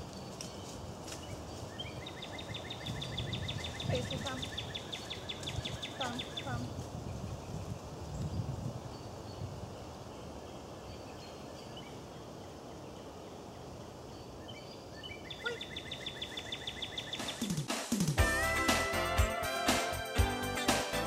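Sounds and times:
faint bird chirps: 14.1 - 17.6
rapid bird trill: 15.2 - 17.7.

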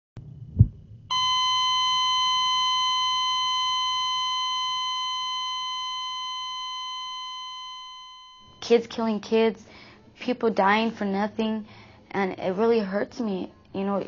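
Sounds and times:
low thud: 0.2 - 1.0
heart monitor flatline tone: 0.6 - 8.6.

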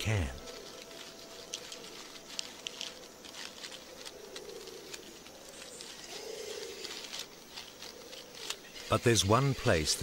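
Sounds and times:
crabs scuttling over dry leaves: 0.0 - 10.0.

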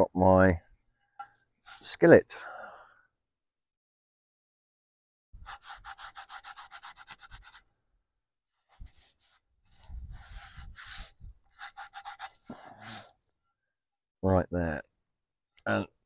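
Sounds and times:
short breath: 2.4 - 3.1, 12.4 - 13.2
zipper rasp: 5.4 - 7.6, 8.6 - 13.2.

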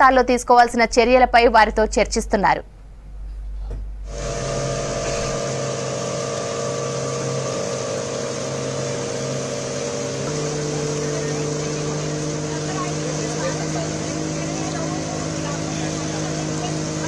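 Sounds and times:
outboard motor running: 4.0 - 17.0
rushing water: 4.1 - 17.0.

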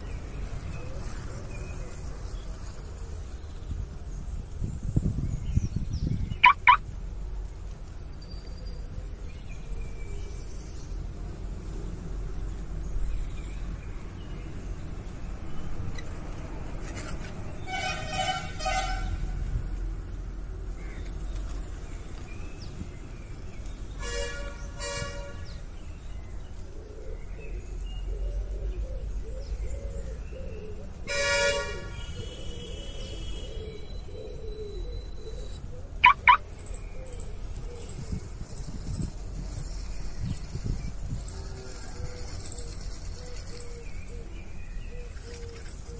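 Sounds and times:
high-pitched chirps: 6.4 - 6.8, 36.0 - 36.5
vehicle horns tooting: 17.6 - 19.3, 24.0 - 25.6, 31.1 - 33.9.

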